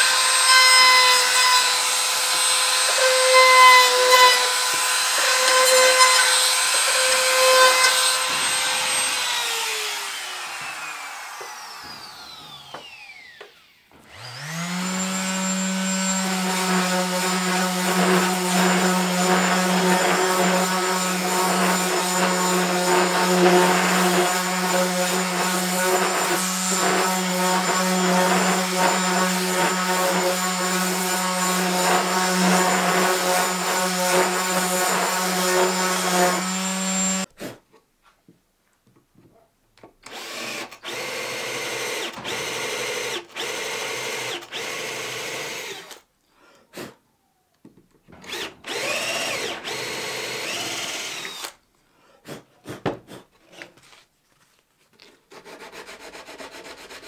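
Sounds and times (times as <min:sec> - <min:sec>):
cordless drill boring into wood: 0:00.0 - 0:37.3, 0:40.0 - 0:46.1, 0:48.2 - 0:51.6
electric sander humming: 0:01.2 - 0:37.3.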